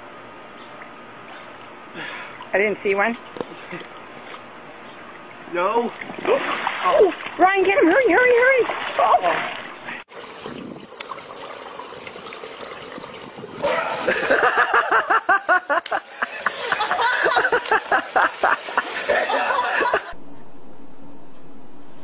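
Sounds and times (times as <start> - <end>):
steady low hum: 0.0 - 22.0
water noise: 5.1 - 21.9
person laughing hard: 13.6 - 20.2.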